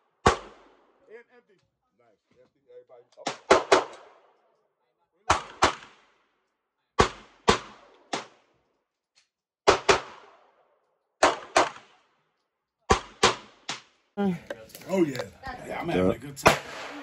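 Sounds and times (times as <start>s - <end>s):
pistol shots echoing: 0.1s - 0.9s, 3.2s - 4.3s, 5.3s - 6.2s, 7.0s - 8.6s, 9.6s - 10.6s, 11.2s - 12.1s, 12.9s - 13.9s, 16.4s - 17.0s.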